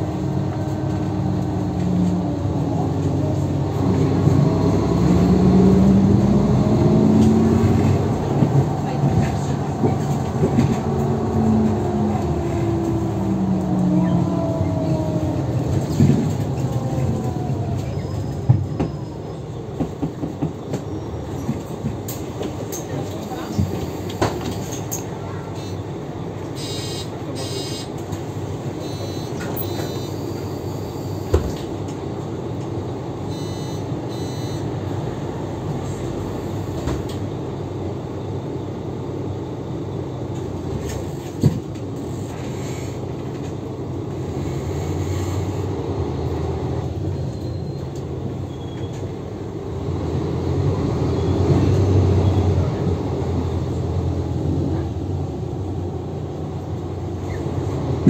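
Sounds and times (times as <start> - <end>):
bus engine droning: 0.0 - 58.0
short electronic beeps: 26.6 - 27.9, 28.8 - 31.4, 33.3 - 34.7.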